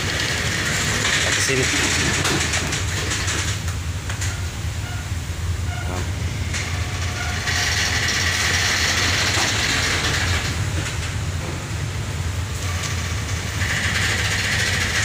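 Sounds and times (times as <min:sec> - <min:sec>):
ship engines droning: 0:00.0 - 0:15.0
trucks creaking and squeaking: 0:00.0 - 0:15.0.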